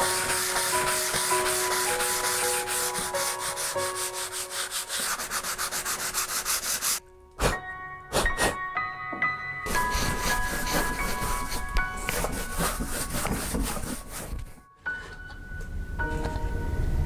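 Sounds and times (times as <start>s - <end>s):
sanding sponge rubbing plaster: 0.0s - 7.0s, 9.7s - 14.6s.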